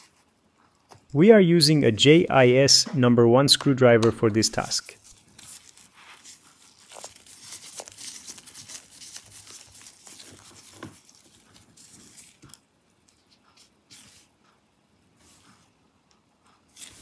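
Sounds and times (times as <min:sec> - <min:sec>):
disposable gloves rustling: 0:04.2 - 0:14.4, 0:16.6 - 0:17.0.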